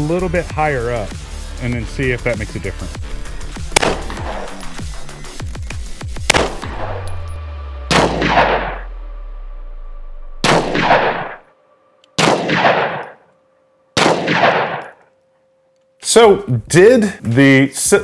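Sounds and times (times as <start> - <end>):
pistol shots echoing: 3.6 - 5.0, 6.2 - 7.2, 7.9 - 8.9, 10.4 - 11.4, 12.2 - 13.2, 14.0 - 15.0.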